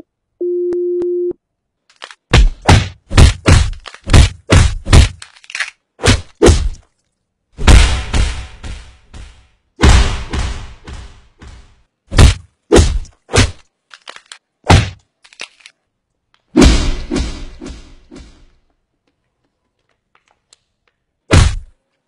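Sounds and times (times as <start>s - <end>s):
slowed heavy punch impacts: 7.6s - 13.1s, 16.6s - 18.4s.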